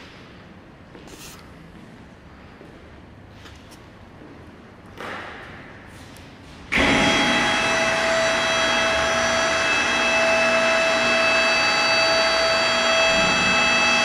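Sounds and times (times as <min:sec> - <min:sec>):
blender lid drive whine: 0:06.8 - 0:14.0.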